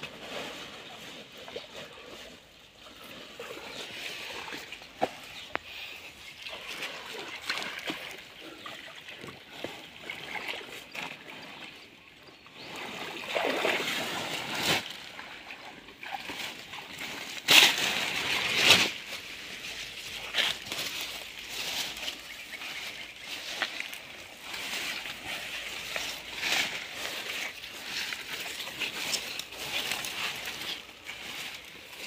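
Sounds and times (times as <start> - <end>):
pond water splashing and sloshing: 0.0 - 32.0
water pouring and dripping: 3.2 - 11.7.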